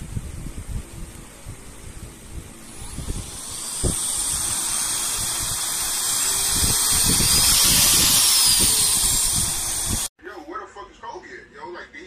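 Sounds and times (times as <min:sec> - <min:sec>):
air duster motor whine: 0:02.0 - 0:10.1.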